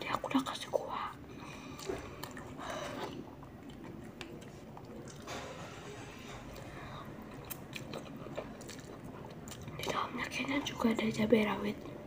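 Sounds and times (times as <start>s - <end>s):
chewing: 1.3s - 5.5s, 6.5s - 11.2s.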